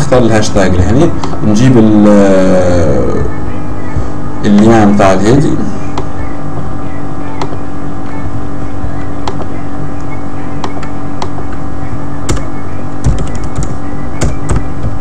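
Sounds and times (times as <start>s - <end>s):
loud background hum: 0.0s - 15.0s
keyboard keys tapping: 8.8s - 15.0s.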